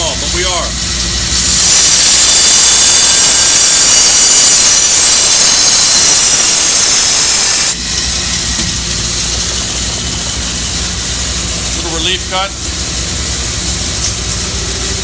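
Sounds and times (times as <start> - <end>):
saw motor humming: 1.2 - 8.5.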